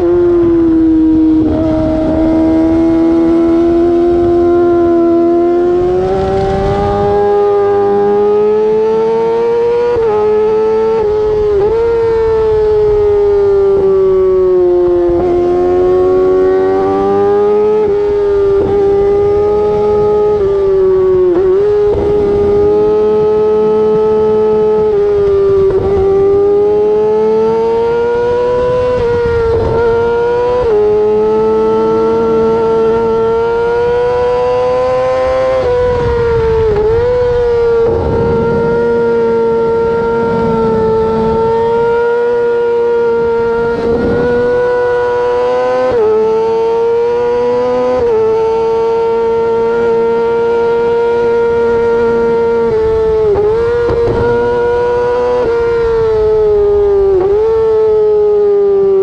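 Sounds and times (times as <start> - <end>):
motorcycle engine howling: 0.0 - 59.0.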